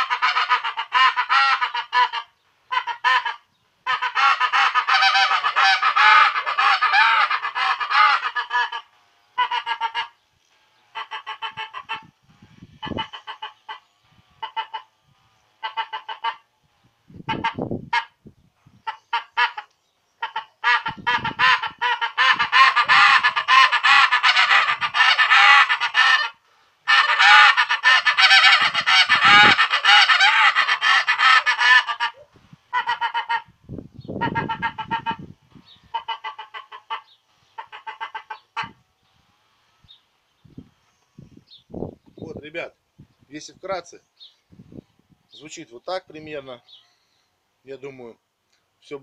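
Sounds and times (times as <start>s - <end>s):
goose call honks: 0.0s - 10.2s, 10.9s - 15.0s, 15.6s - 16.5s, 17.3s - 18.2s, 18.8s - 33.5s, 34.2s - 38.8s.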